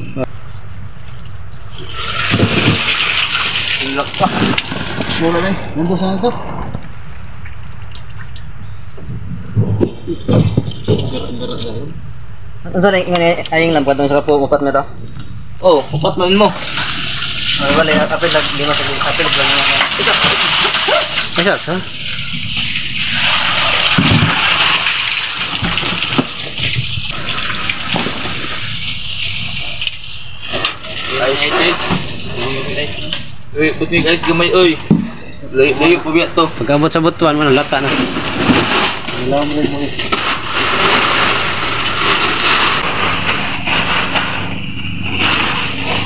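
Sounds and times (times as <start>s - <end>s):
water sloshing and gushing: 1.0s - 5.2s, 7.1s - 11.8s, 16.5s - 33.2s, 37.3s - 46.0s
water pouring off net: 1.8s - 5.1s, 16.6s - 32.3s, 40.0s - 46.0s.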